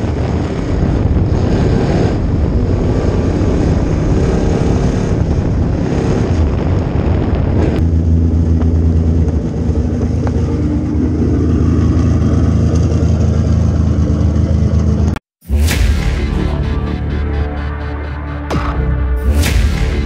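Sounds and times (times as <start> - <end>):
loud whoosh: 15.4 - 20.0.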